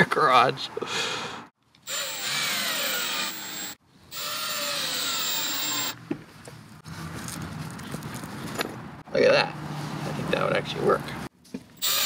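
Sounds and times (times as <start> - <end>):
cordless drill driving screws: 1.9 - 6.0.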